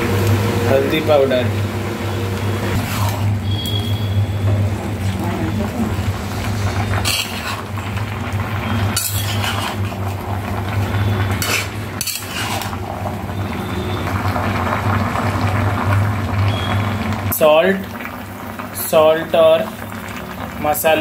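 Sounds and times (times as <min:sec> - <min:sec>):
spatula scraping pan: 0:02.7 - 0:03.3, 0:06.9 - 0:07.8, 0:08.6 - 0:10.2, 0:11.0 - 0:12.8
metal spatula stirring in wok: 0:02.8 - 0:03.3, 0:06.9 - 0:07.8, 0:08.6 - 0:10.2, 0:11.4 - 0:12.8.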